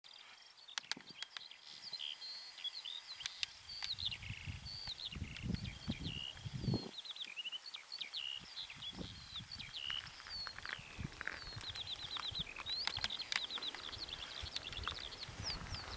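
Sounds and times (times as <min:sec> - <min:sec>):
songbirds singing: 0:00.1 - 0:15.9
wind rumble on microphone: 0:03.8 - 0:06.9, 0:08.4 - 0:13.2, 0:13.8 - 0:15.9.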